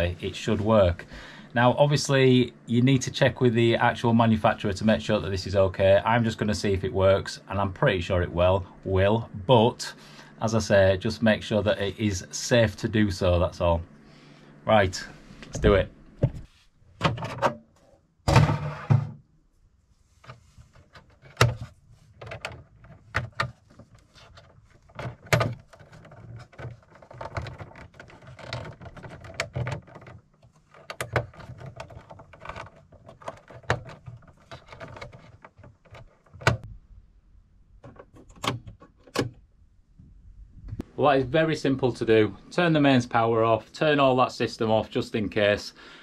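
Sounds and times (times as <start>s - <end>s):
clatter of handling: 20.2s - 36.7s.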